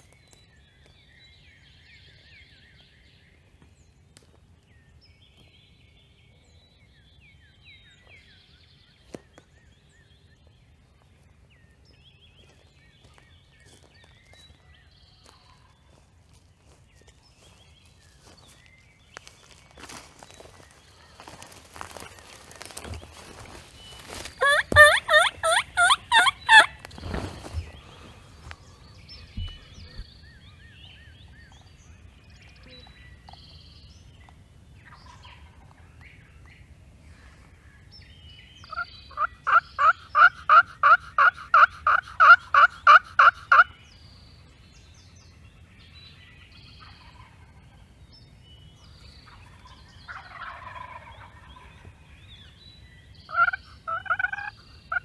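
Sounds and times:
turkey yelping: 24.4 - 26.8, 39.2 - 43.7, 53.3 - 54.5.

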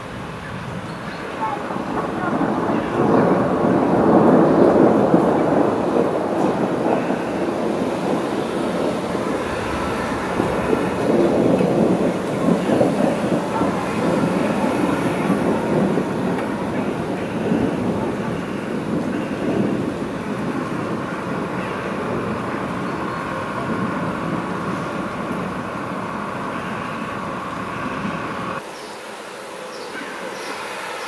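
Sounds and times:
thunder rolling: 0.0 - 28.6.

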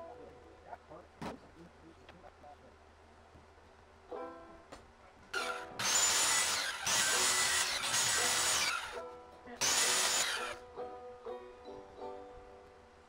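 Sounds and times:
banjo background music: 4.1 - 4.8, 7.3 - 12.8
circular saw cutting board: 5.4 - 9.0, 9.6 - 10.6.

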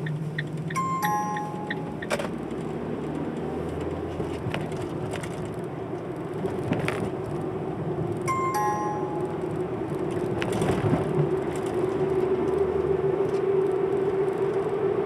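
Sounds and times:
car engine and road noise: 0.0 - 15.0
short electronic beep: 0.7 - 2.1, 8.3 - 9.4.

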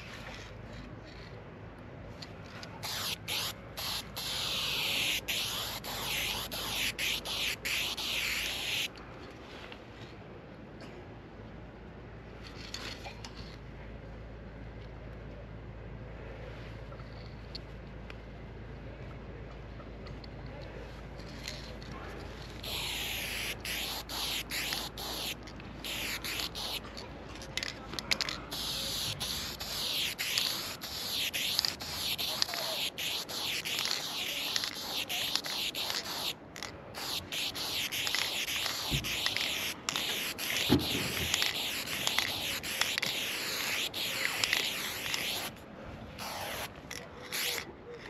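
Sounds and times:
spray paint can hissing: 2.8 - 8.9, 22.4 - 45.6, 46.2 - 47.6.

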